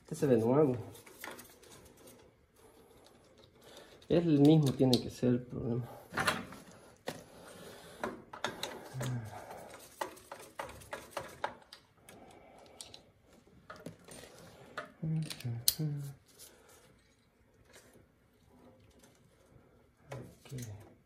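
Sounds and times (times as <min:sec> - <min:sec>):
tools clicking and clinking: 0:03.0 - 0:05.2, 0:08.0 - 0:15.9.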